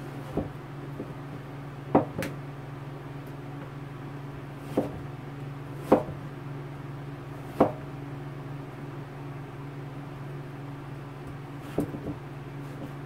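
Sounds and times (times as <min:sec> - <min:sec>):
steady low hum: 0:00.0 - 0:13.0
knife knocking on cutting board: 0:01.9 - 0:02.3.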